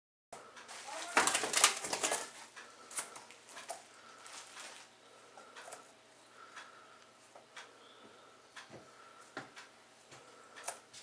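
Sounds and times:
bird wings flapping: 0:00.8 - 0:02.4.

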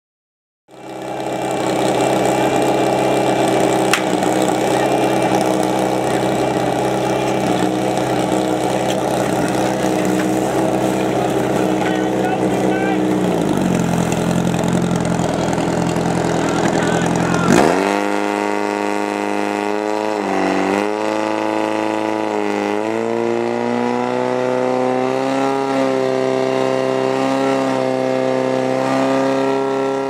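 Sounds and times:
pump engine running at high revs: 0:00.7 - 0:30.0
sharp crack: 0:03.8 - 0:04.8.

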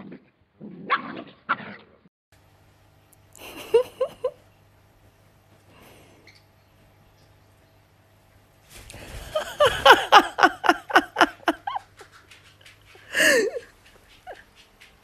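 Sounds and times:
laughter: 0:03.4 - 0:04.4, 0:09.0 - 0:12.1.

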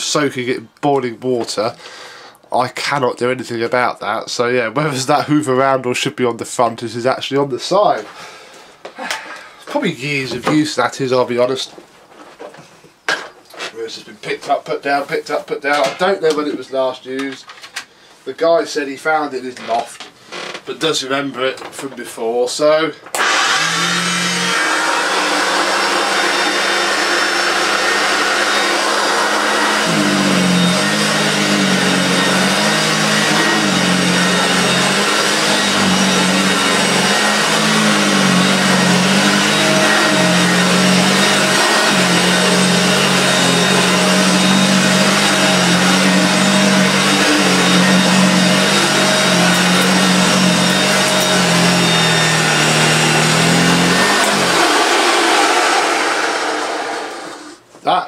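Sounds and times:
upright vacuum cleaner running: 0:23.2 - 0:57.6.

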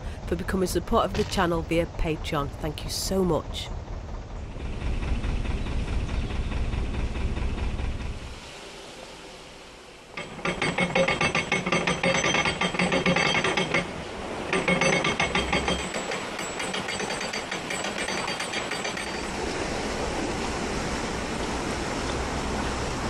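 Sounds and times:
water rushing through paddle: 0:07.8 - 0:23.0.

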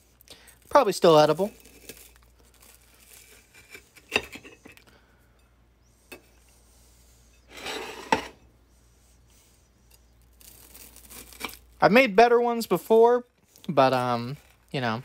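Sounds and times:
utensils scraping: 0:06.1 - 0:08.5.

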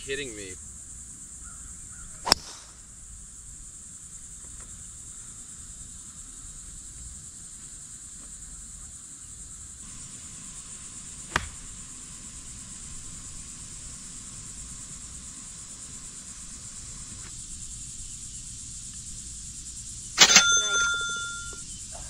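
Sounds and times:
golf club striking ball: 0:02.2 - 0:02.7, 0:11.3 - 0:11.7
high-pitched insect drone: 0:09.0 - 0:22.0.

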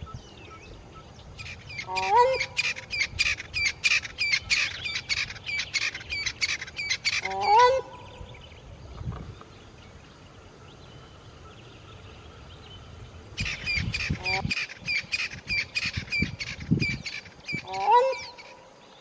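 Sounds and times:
bird high repeated calls: 0:00.0 - 0:08.3, 0:13.4 - 0:18.8.

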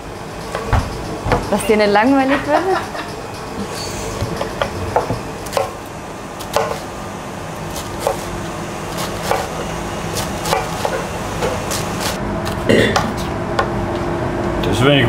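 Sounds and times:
background hum: 0:00.0 - 0:15.0
knife chopping on plastic board: 0:04.2 - 0:05.8, 0:06.4 - 0:06.8, 0:09.0 - 0:09.6, 0:10.2 - 0:11.9.

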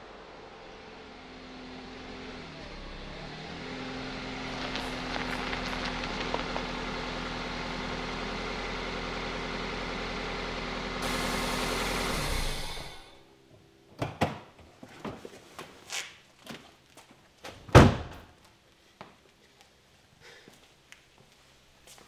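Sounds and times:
minivan engine idling: 0:00.1 - 0:13.4.

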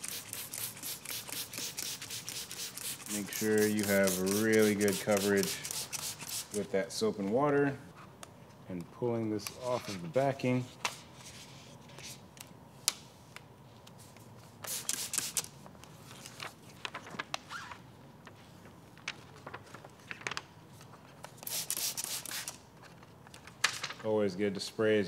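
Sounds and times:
spray bottle hissing: 0:00.0 - 0:06.5, 0:14.7 - 0:15.4, 0:21.5 - 0:22.5.

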